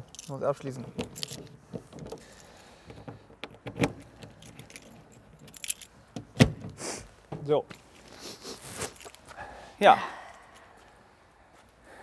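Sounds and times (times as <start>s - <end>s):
keys jangling: 0.0s - 1.5s, 3.7s - 6.2s, 8.8s - 9.3s
lock clicks: 3.3s - 6.8s.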